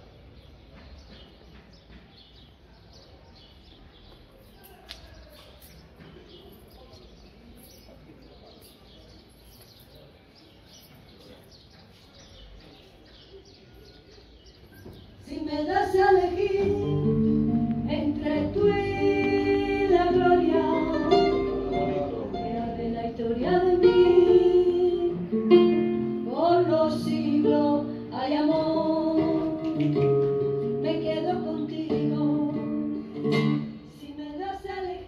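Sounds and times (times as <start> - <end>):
small birds chirping: 0.0 - 16.4
murmur of distant voices: 0.0 - 35.0
song with female singer: 15.3 - 21.6, 26.2 - 30.0, 30.6 - 32.9.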